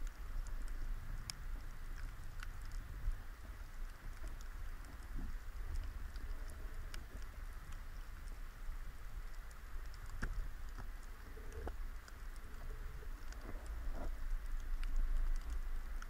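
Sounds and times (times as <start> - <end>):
low rumble of moving water: 0.0 - 16.0
underwater clicks and crackles: 0.0 - 16.0.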